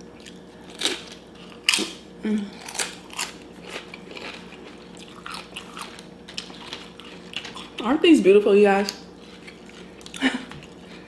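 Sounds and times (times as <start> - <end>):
tortilla chip crunching: 0.0 - 7.9.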